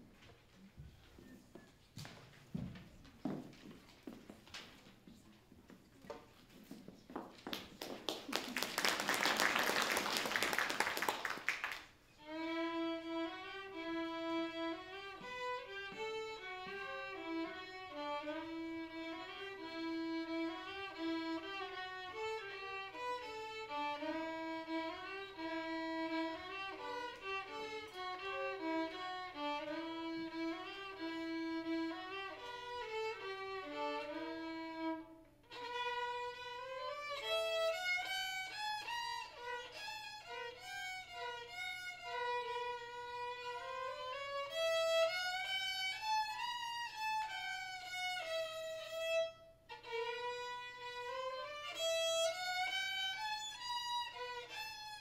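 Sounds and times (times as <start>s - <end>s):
audience applause: 7.5s - 11.9s
violins playing held notes: 12.2s - 54.7s.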